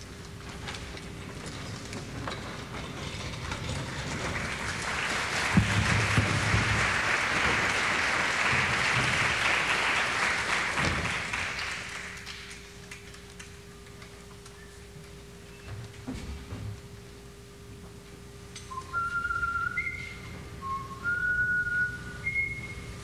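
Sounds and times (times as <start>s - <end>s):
audience applauding: 3.9s - 13.4s.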